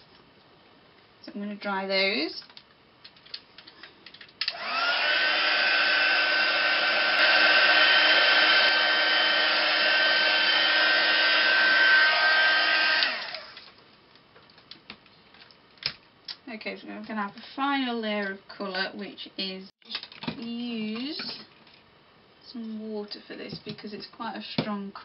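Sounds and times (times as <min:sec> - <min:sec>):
heat gun fan whine: 0:04.4 - 0:13.7.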